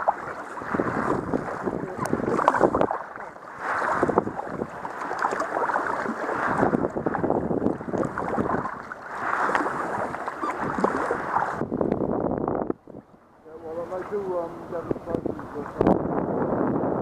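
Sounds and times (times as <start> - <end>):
paddle splashing water: 0.0 - 15.9
wind on microphone: 0.0 - 17.0.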